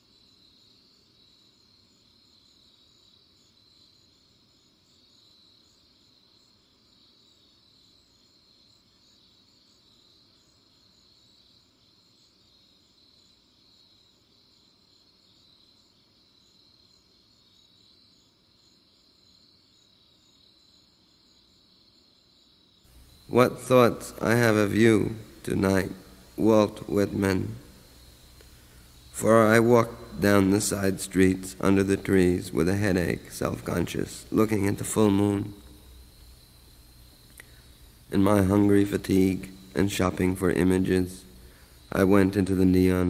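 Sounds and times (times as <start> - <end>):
crickets trilling: 0.0 - 43.0.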